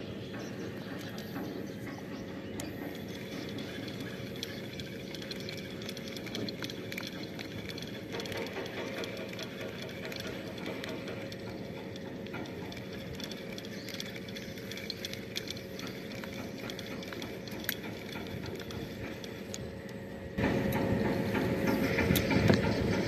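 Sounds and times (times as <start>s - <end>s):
low hum: 0.0s - 23.0s
fishing reel whirring: 2.6s - 19.7s.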